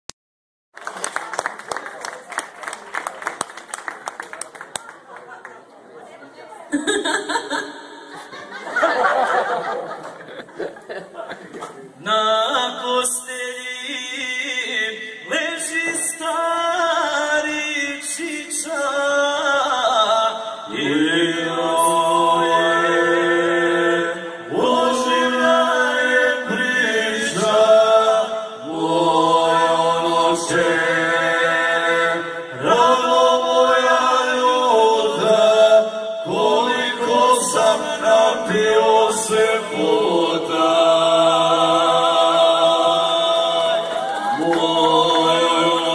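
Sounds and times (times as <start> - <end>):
men singing in harmony: 12.0 - 45.9.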